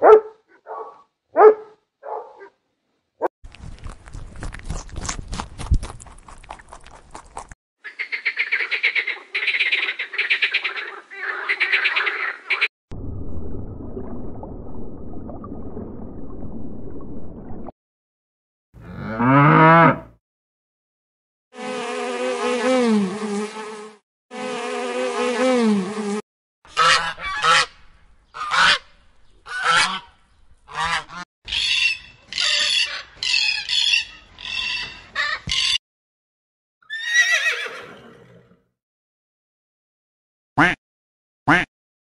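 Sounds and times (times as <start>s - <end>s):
domestic waterfowl calling: 7.8s - 12.7s, 26.7s - 35.8s, 41.5s - 41.7s.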